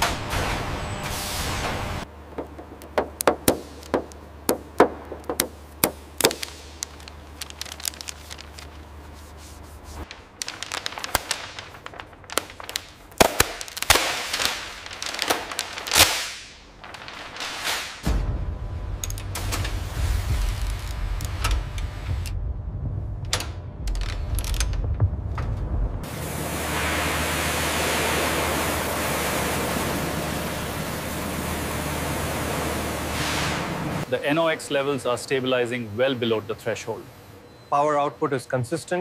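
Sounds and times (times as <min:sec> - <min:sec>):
low machine hum: 0:00.0 - 0:16.0, 0:18.1 - 0:37.7
rushing rubbing noises: 0:04.8 - 0:18.0
mechanical clicks and knocks: 0:19.0 - 0:19.8, 0:23.2 - 0:25.8.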